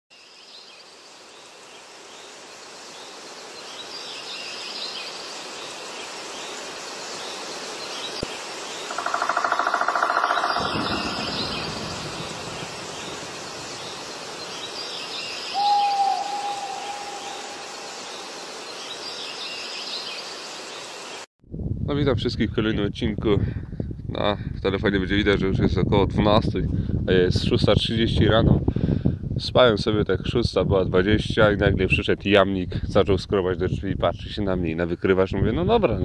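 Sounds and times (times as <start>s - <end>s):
steady background hiss: 0.2s - 21.3s
birds chirping: 7.2s - 20.4s
rapid trilling bird call: 8.8s - 19.7s.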